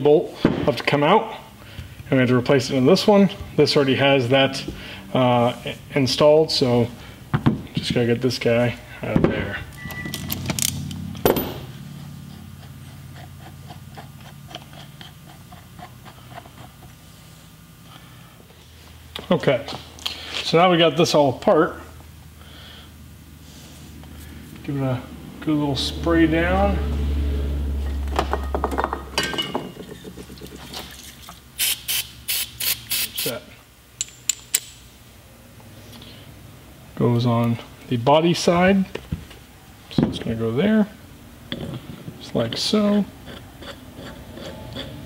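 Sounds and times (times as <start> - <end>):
steady low hum: 0.0 - 31.6
aerosol spray can hiss: 31.6 - 33.2.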